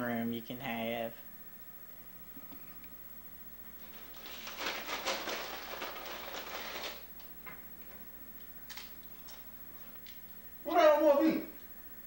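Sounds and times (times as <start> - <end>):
snack packaging crinkling: 3.8 - 7.3.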